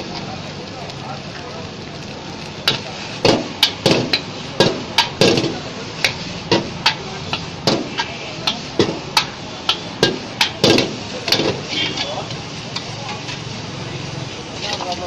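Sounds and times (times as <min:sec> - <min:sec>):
frying hiss: 0:00.0 - 0:15.0
metal spatula clanging on wok: 0:02.6 - 0:13.4.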